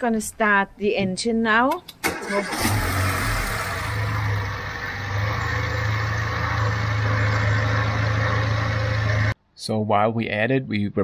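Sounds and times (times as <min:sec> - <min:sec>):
car engine starting and idling: 0:01.9 - 0:09.4.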